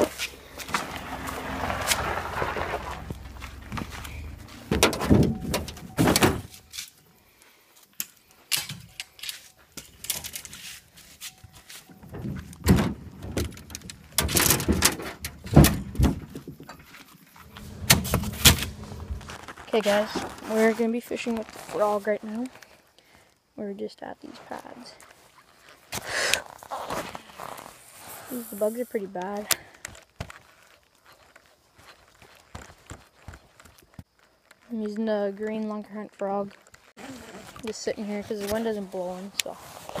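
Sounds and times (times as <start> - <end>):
knocks and clunks of gear: 0.0 - 6.9, 12.1 - 19.6.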